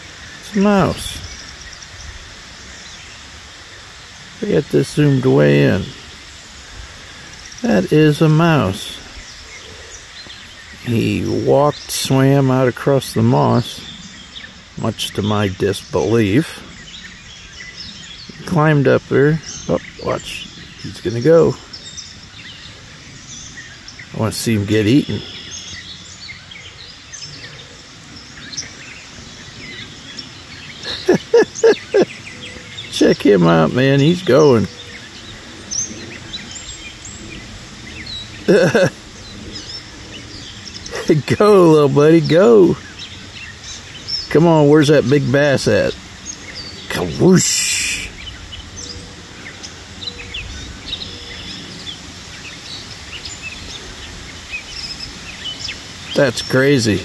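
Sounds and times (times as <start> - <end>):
outdoor background noise: 0.0 - 57.0
small birds chirping: 0.0 - 57.0.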